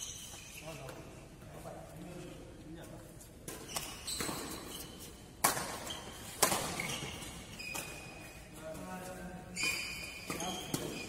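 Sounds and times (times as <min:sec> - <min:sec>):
shoes squeaking on court floor: 0:00.0 - 0:01.9, 0:02.8 - 0:11.0
rackets hitting shuttlecock: 0:03.4 - 0:08.3, 0:09.6 - 0:11.0.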